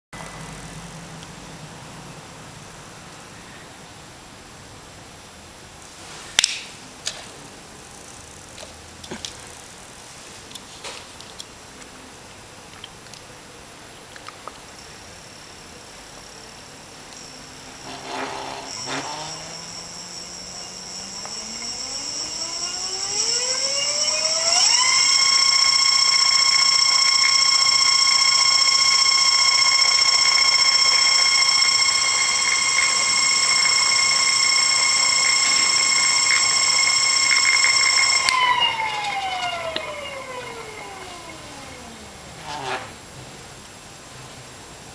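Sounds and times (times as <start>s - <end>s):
electric motor whine: 14.5s - 43.2s
clicks: 17.1s - 41.9s.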